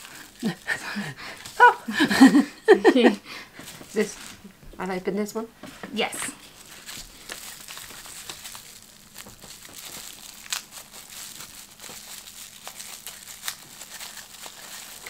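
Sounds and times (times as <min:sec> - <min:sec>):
bubble wrap crinkling: 0:00.0 - 0:02.2, 0:06.4 - 0:15.0
bubble wrap clicks: 0:06.8 - 0:15.0.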